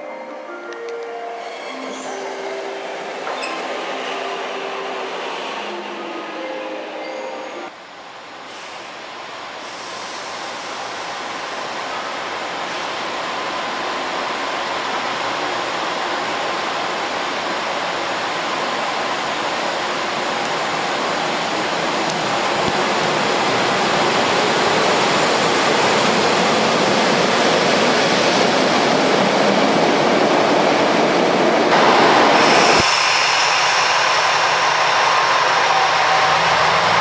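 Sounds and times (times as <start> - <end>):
train wheels rushing on rails: 8.5 - 37.0.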